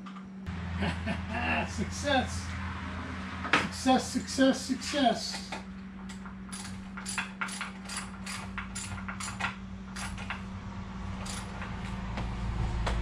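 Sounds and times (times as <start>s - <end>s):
steady low hum: 0.0s - 13.0s
ratchet wrench clicking: 6.1s - 10.4s, 11.2s - 11.7s.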